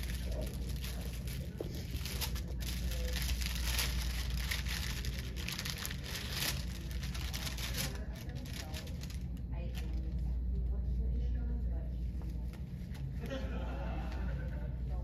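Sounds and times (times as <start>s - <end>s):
paper wrapper crinkling: 0.0s - 10.2s.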